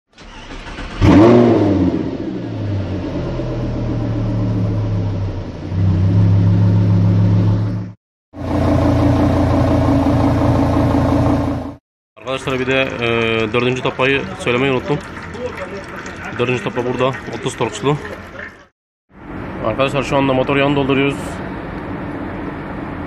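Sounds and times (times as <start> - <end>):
car engine idling: 2.4 - 11.8.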